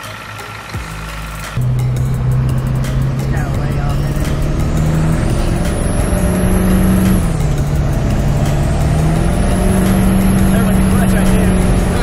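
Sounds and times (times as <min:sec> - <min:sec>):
diesel engine accelerating: 0:00.0 - 0:12.0.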